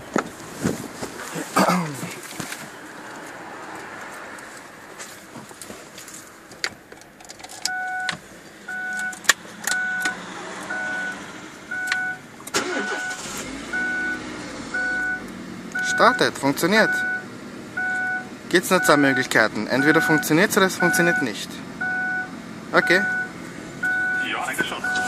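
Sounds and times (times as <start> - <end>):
car engine starting and idling: 6.3 - 25.0
car warning chime beeping: 7.7 - 25.0.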